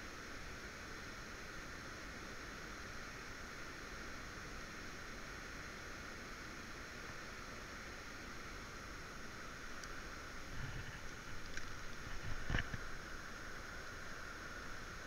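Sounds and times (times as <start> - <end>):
flowing river water: 8.7 - 15.0.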